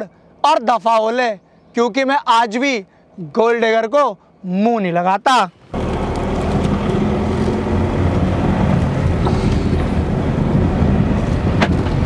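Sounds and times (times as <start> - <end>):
road and wind noise: 0.0 - 12.0
car engine humming: 5.6 - 12.0.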